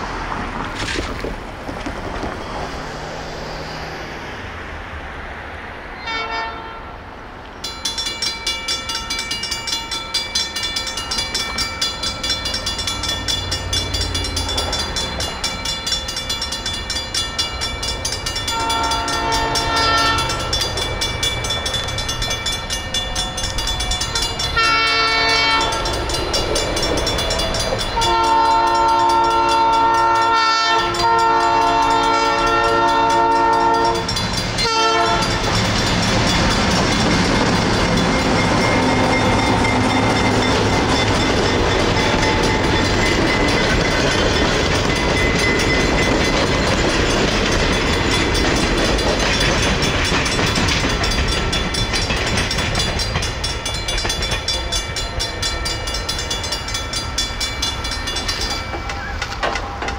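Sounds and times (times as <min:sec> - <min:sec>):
train horn blasts: 0:06.0 - 0:07.1, 0:18.4 - 0:20.8, 0:23.1 - 0:26.1, 0:27.8 - 0:35.6
railroad crossing bell ringing: 0:06.0 - 0:59.9.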